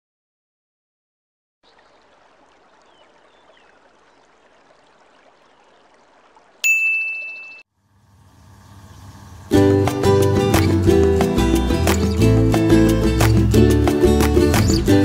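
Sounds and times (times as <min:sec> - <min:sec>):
stream water running over rocks: 0:01.6 - 0:07.6
notification bell ding: 0:06.6 - 0:07.7.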